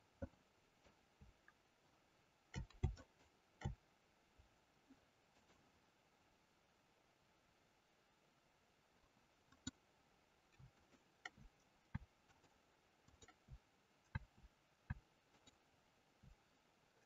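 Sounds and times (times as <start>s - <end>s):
mouse and keyboard clicks: 2.5s - 3.8s, 9.5s - 9.8s, 10.6s - 15.6s.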